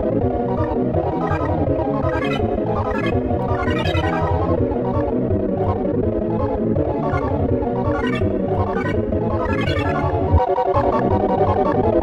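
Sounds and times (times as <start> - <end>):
electronic alarm music: 1.2 - 4.6, 6.4 - 12.0.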